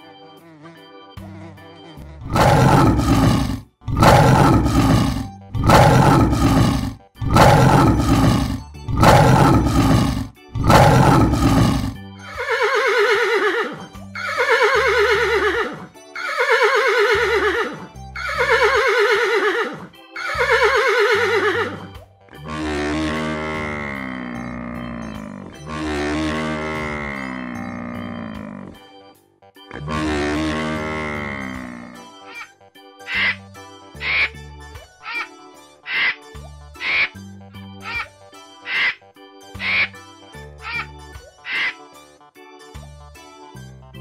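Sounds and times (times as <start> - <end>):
buffalo lowing: 2.2 - 15.8, 22.4 - 28.8, 29.7 - 32.0
horse whinnies: 2.2 - 21.9
deep animal calls: 2.2 - 28.8, 29.7 - 32.0.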